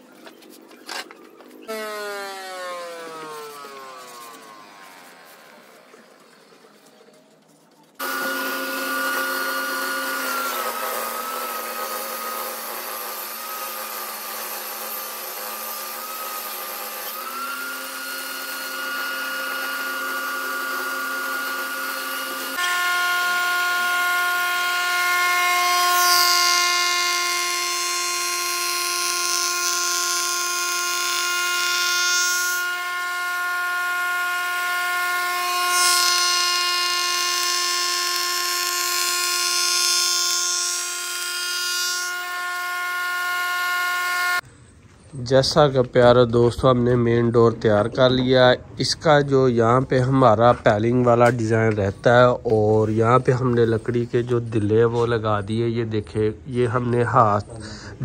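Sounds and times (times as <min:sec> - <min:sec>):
cutter cutting wood: 0:00.8 - 0:06.6, 0:08.0 - 0:44.4
woodworking machine motor hum: 0:00.9 - 0:07.2, 0:08.0 - 0:44.4.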